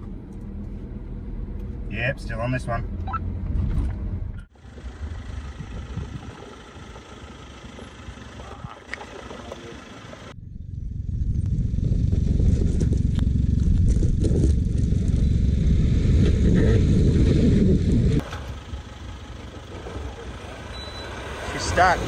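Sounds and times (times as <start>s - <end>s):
vehicle engine rumble: 0.0s - 22.0s
tyres scrabbling in dirt: 18.2s - 22.0s.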